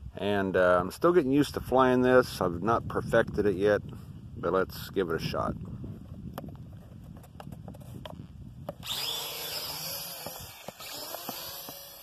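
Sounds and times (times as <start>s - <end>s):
toy drone propellers whining: 8.7s - 12.0s.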